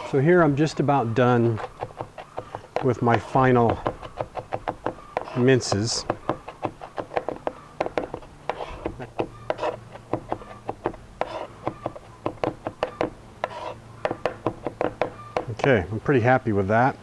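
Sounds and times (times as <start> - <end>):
knife blade scraping: 1.3 - 15.5
knife tapping on cutting board: 11.6 - 15.5.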